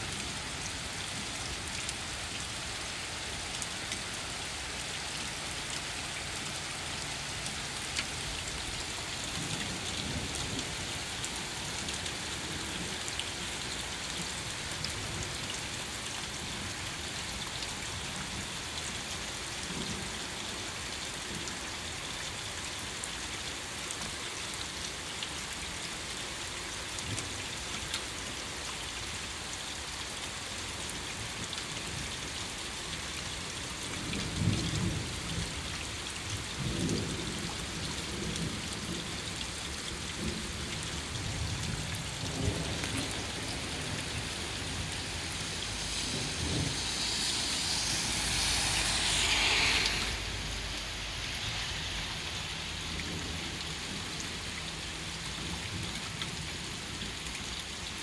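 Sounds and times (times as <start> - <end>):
steady rain: 0.0 - 58.0
loud rushing noise: 45.0 - 52.2.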